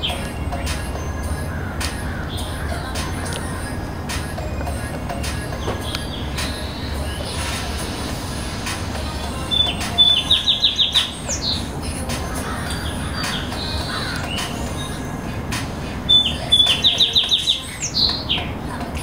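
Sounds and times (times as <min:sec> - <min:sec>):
songbird singing: 0:00.0 - 0:19.0.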